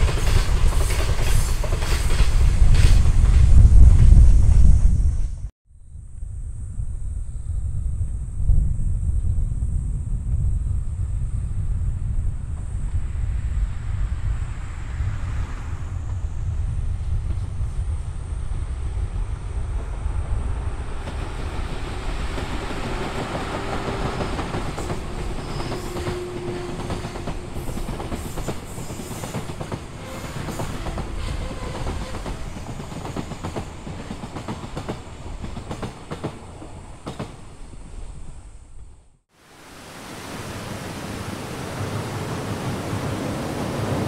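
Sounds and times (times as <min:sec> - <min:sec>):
train wheels clattering over rail joints: 0:21.0 - 0:37.6.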